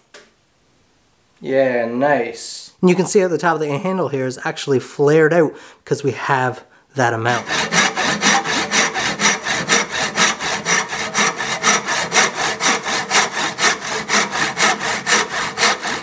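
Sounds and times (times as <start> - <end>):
handsaw cutting wood: 7.2 - 16.0.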